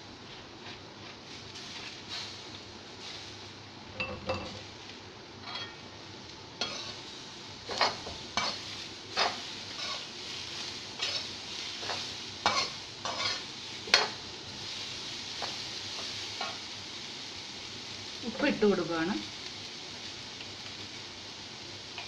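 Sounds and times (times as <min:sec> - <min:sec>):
hot oil sizzling: 0:00.0 - 0:22.0
spoon scraping frying pan: 0:05.4 - 0:05.8, 0:06.6 - 0:07.0, 0:07.7 - 0:10.1, 0:11.0 - 0:14.2.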